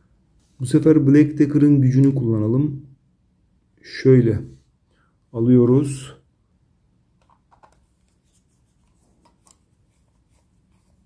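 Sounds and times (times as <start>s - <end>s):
faint clicks and taps: 7.2s - 9.6s.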